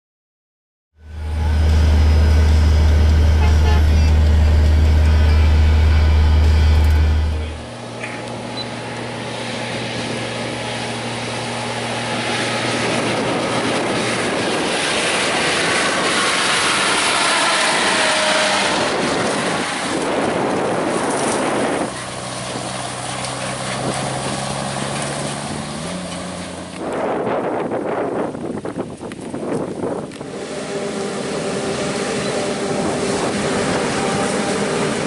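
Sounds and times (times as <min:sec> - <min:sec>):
engine drone inside tractor cab: 0:01.0 - 0:17.0, 0:18.6 - 0:27.5
tractor pulling wagon: 0:01.0 - 0:35.0.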